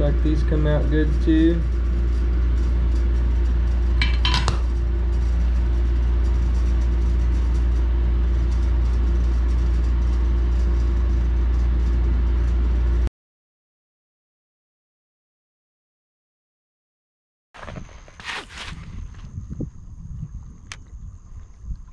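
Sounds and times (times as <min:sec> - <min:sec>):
low background rumble: 0:00.0 - 0:13.1
metallic clink: 0:04.0 - 0:05.5.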